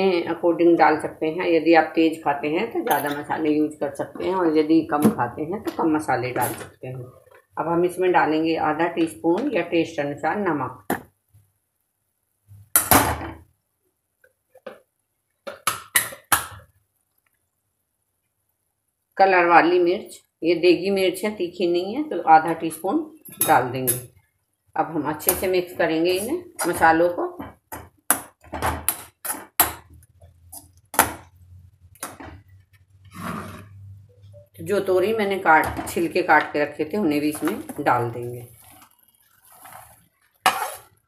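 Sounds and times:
metal spoon clattering: 2.9 - 3.3
spatula scraping pan: 33.0 - 34.0, 37.2 - 41.0.

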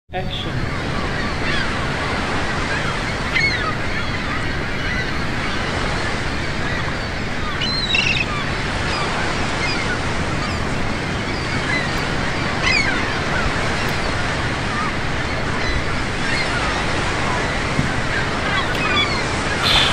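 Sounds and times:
surf: 0.4 - 19.9
short bird calls: 18.6 - 19.9.

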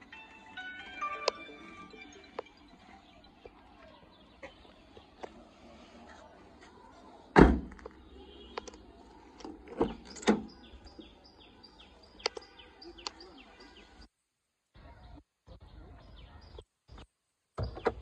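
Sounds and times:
birds chirping: 0.0 - 14.2, 14.8 - 18.0
car door thudding shut: 7.4 - 7.8.

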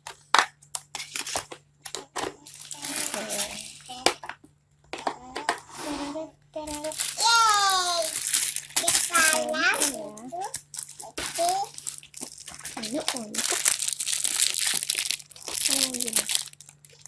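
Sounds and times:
young children's voices: 5.1 - 8.2, 8.8 - 11.8
plastic toy pieces clicking: 6.7 - 17.0.

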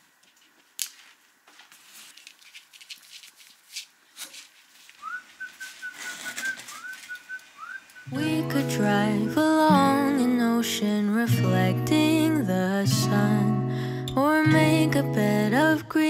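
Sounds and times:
clicks and rustles: 0.2 - 7.5.

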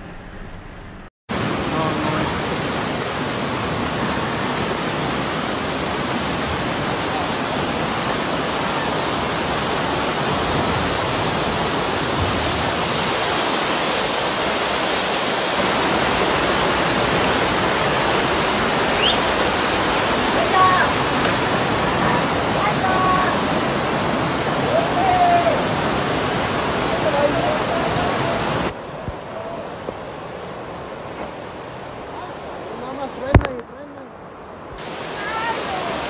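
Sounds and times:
floodwater rushing: 1.3 - 36.0.

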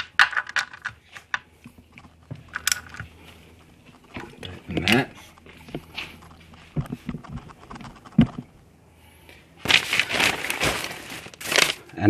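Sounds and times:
rustling handling noise: 9.3 - 12.0.

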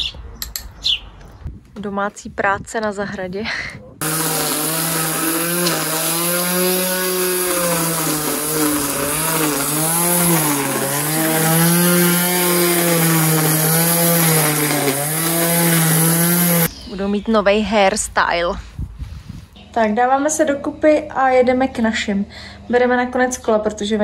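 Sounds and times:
electric string trimmer whining: 4.0 - 16.7.

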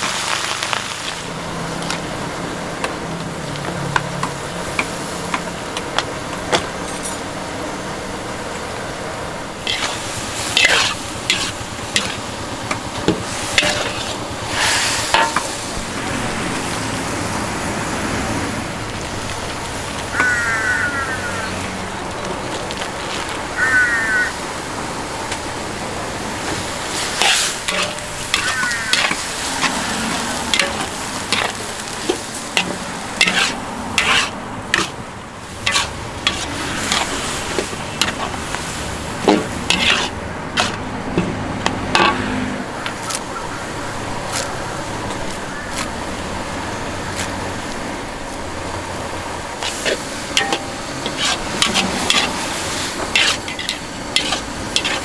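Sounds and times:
food sizzling in a pan: 0.0 - 6.8, 9.4 - 21.8, 22.5 - 24.4, 25.2 - 41.3, 47.1 - 55.0
metal scraping on metal: 9.6 - 12.3, 13.5 - 15.5, 27.0 - 35.0, 35.6 - 38.4, 39.2 - 42.3, 49.6 - 52.4, 53.1 - 55.0
metal utensil clanking: 9.6 - 14.2, 15.1 - 15.6, 26.5 - 35.0, 35.6 - 38.4, 39.2 - 42.2, 49.6 - 52.4, 53.0 - 55.0.

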